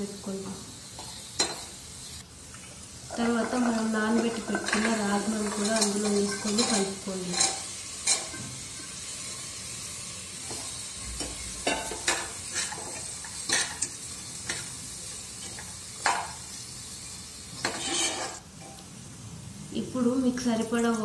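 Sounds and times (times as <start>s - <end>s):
pan sizzling: 0.0s - 19.2s
steel spoon scraping pot: 3.1s - 9.0s, 17.6s - 18.4s.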